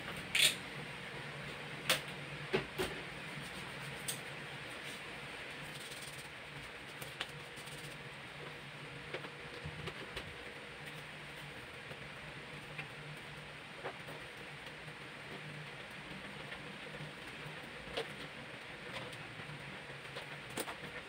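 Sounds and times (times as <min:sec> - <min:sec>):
room hiss with low hum: 0:00.0 - 0:21.0.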